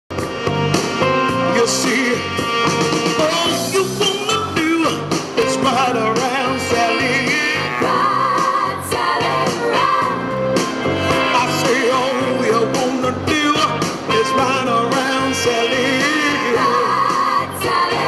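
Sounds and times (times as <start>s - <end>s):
musical backing track: 0.1s - 18.0s
woman singing with vibrato: 16.4s - 18.0s.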